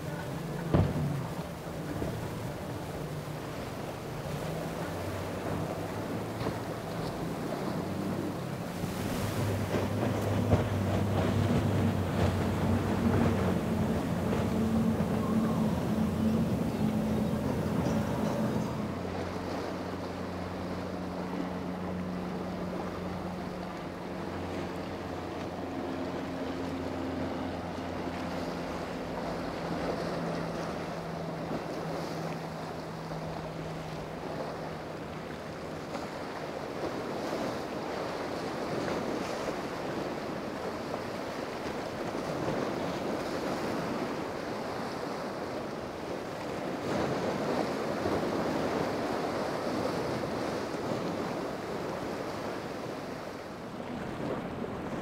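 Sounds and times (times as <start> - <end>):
wind on microphone: 0.0 - 19.8
powerboat engine hum: 0.0 - 55.0
surf and waves: 0.0 - 55.0.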